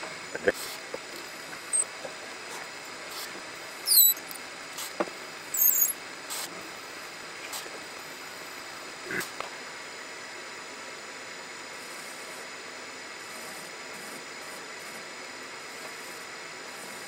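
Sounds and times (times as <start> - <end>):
high-pitched cutting squeals: 3.9 - 4.3, 5.5 - 6.0.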